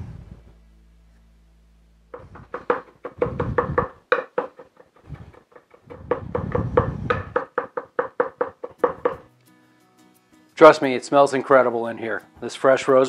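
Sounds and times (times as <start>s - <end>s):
knife chopping on wooden board: 2.2s - 9.3s.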